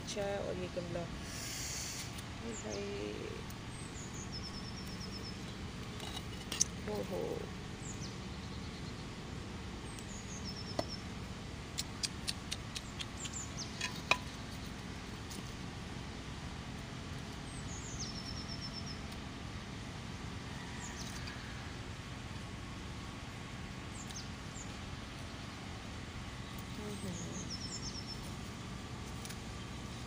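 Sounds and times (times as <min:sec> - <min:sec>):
low background rumble: 0:00.0 - 0:30.0
small bird calling: 0:00.1 - 0:09.2, 0:09.8 - 0:15.5, 0:17.2 - 0:19.2, 0:26.3 - 0:28.6
sharp clicks and taps: 0:11.8 - 0:14.3.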